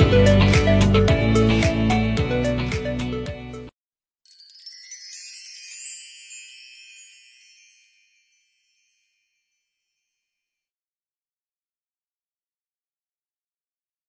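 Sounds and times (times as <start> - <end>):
shimmering bell-like chime: 4.3 - 10.7.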